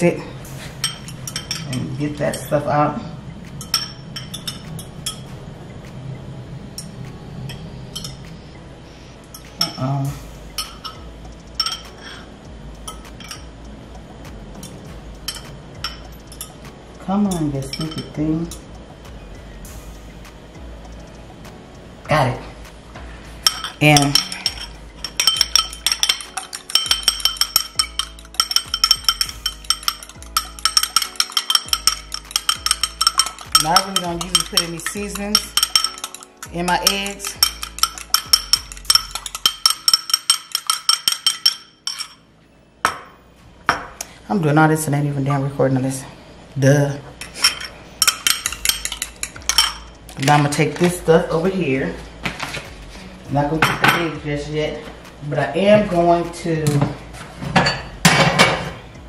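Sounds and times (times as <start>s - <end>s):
background music with deep bass: 0.0s - 44.3s, 47.1s - 59.0s
fork clinking against glass bowl: 0.8s - 2.4s, 11.6s - 12.0s, 23.4s - 42.2s, 47.2s - 50.4s.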